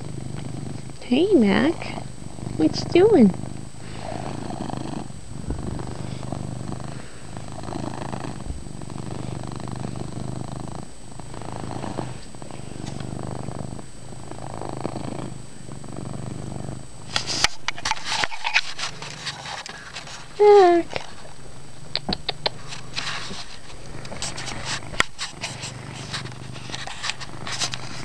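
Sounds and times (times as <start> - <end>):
cat purring: 0.0 - 28.0
rustling and clicks: 22.1 - 28.0.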